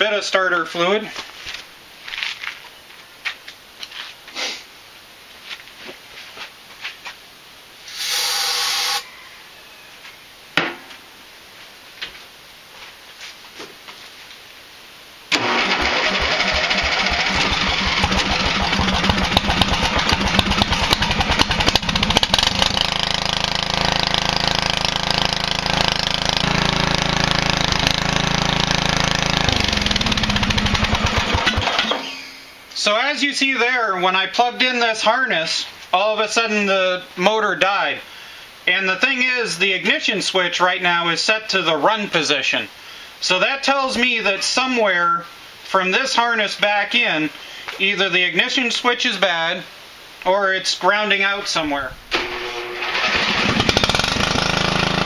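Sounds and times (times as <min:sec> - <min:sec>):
aerosol spray hiss: 0:07.8 - 0:09.0
riding mower engine running: 0:15.3 - 0:32.1, 0:51.8 - 0:55.0.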